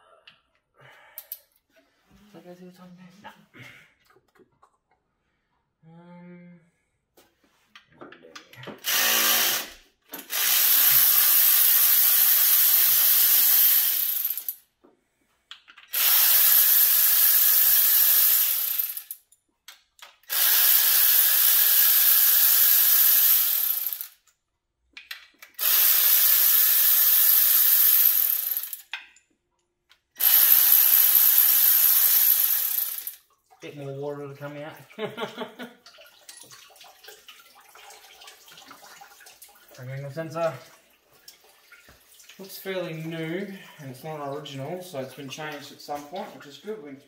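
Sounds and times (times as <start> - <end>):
electric ratchet spinning bolts: 8.8 - 14.6, 15.9 - 19.2, 20.2 - 24.2, 25.5 - 29.0, 30.2 - 33.2.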